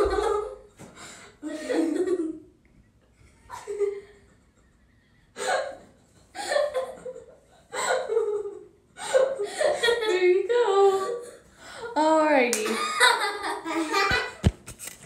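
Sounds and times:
girls giggling: 0:00.0 - 0:02.6, 0:03.2 - 0:11.5, 0:12.6 - 0:14.5.

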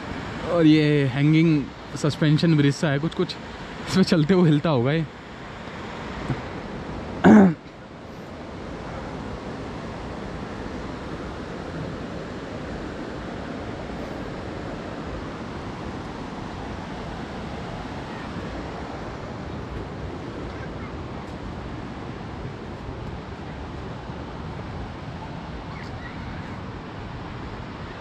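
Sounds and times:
river water rushing: 0:00.0 - 0:28.0.

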